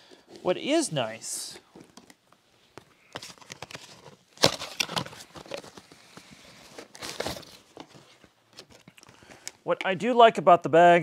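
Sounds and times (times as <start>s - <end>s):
packaging crinkling and rustling: 1.8s - 9.5s.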